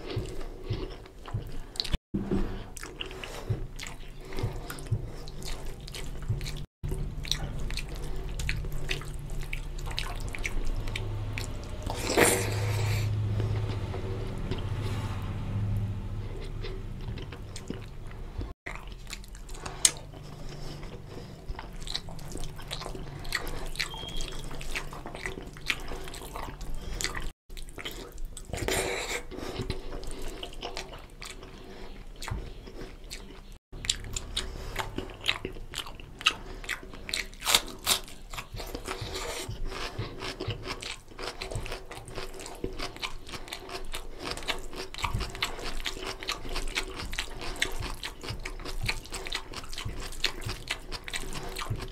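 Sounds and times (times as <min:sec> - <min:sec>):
chewing: 0:00.0 - 0:51.9
fingers mixing wet rice: 0:29.5 - 0:51.9.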